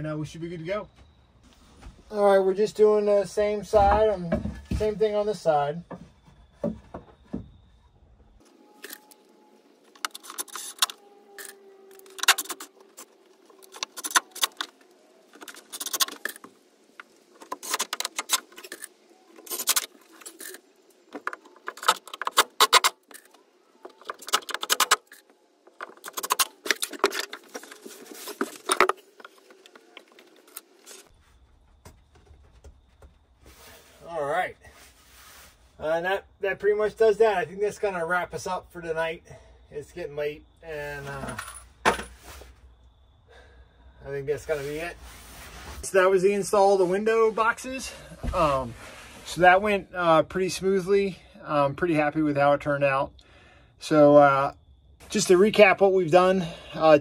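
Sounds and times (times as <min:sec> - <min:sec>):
wooden frame pieces clattering: 0:12.0 - 0:31.1.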